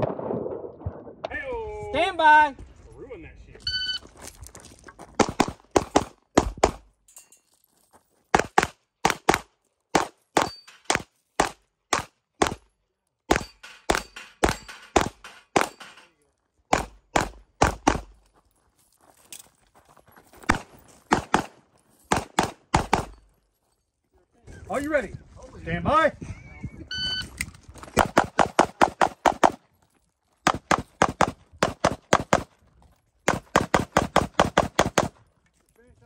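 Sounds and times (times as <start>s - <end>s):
pistol gunshots: 5.2s - 6.9s, 8.4s - 12.6s, 13.3s - 16.1s, 16.7s - 18.2s, 20.5s - 23.2s, 28.0s - 29.6s, 30.4s - 32.5s, 33.3s - 35.2s.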